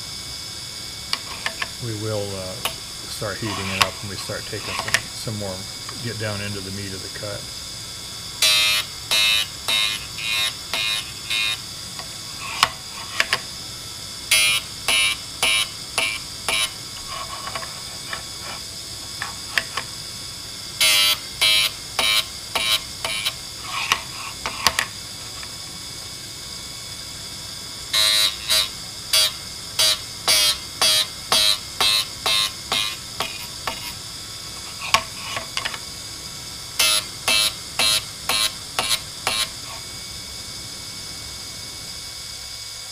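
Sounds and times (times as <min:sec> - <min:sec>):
grinder high whine: 0:00.0 - 0:42.9
drill bit grinding rasp: 0:01.1 - 0:05.5, 0:08.4 - 0:11.7, 0:20.8 - 0:25.4, 0:28.0 - 0:35.7, 0:36.8 - 0:39.8.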